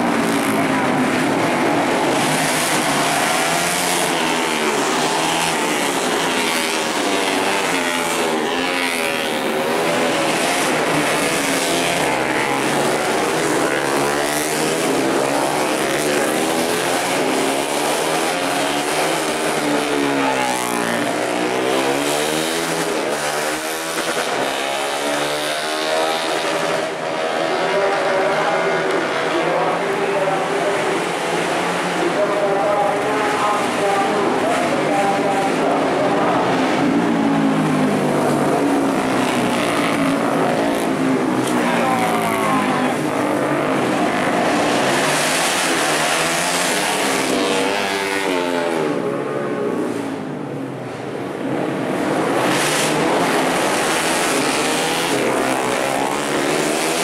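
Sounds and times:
racing motorcycles at full throttle: 0:00.0 - 0:57.0.

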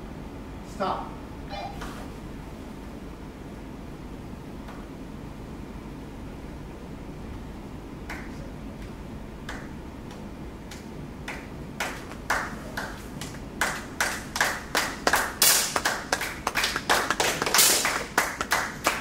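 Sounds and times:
crowd clapping: 0:08.1 - 0:19.0.

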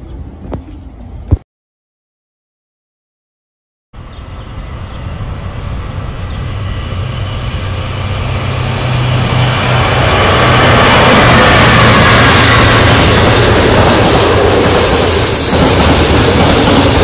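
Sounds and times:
freight train rumble: 0:04.0 - 0:17.0.

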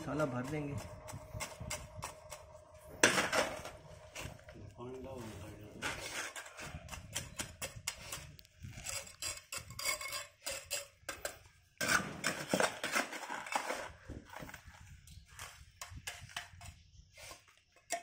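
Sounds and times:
trowel scraping wet mortar: 0:05.7 - 0:18.0.

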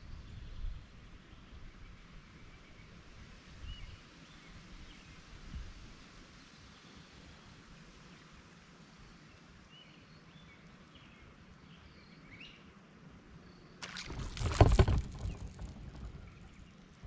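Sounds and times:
paddle splashing in water: 0:13.8 - 0:16.7.

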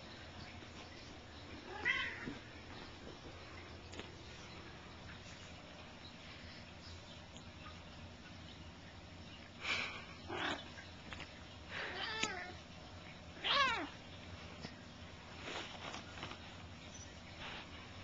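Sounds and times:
cat meowing: 0:01.7 - 0:02.3, 0:13.4 - 0:13.9.

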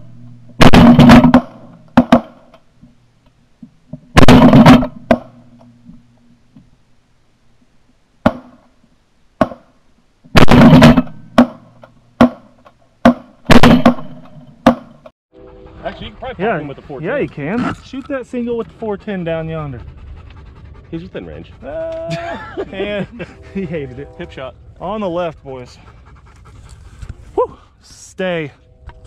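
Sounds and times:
shotgun shots: 0:00.6 - 0:02.5, 0:04.1 - 0:05.3, 0:10.3 - 0:11.6, 0:13.0 - 0:14.9.

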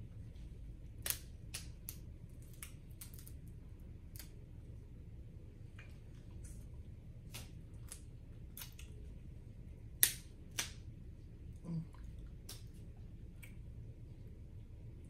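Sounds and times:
shellfish shells cracking: 0:01.0 - 0:03.4.

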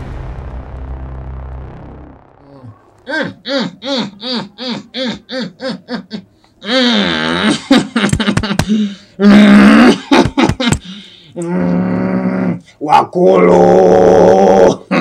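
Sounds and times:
sharp clicks and smacks: 0:08.0 - 0:08.8.

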